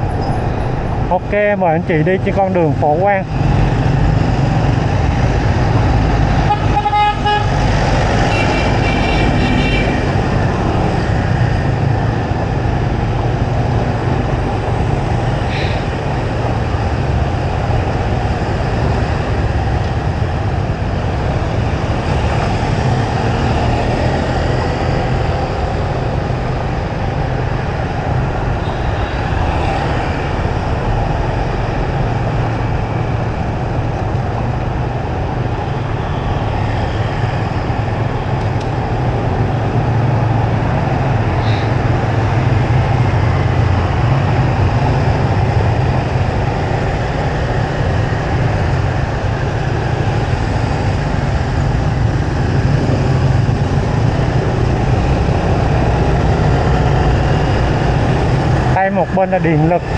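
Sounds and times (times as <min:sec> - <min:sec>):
street traffic rumble: 0:00.0 - 0:59.9
vehicle horn toot: 0:06.5 - 0:07.5, 0:08.3 - 0:10.0.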